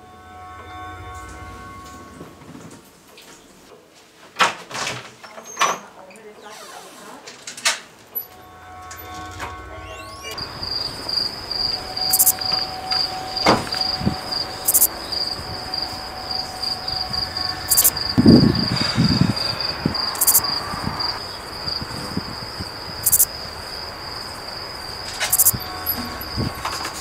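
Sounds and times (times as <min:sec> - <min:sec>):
crickets chirping: 0:08.2 - 0:27.0.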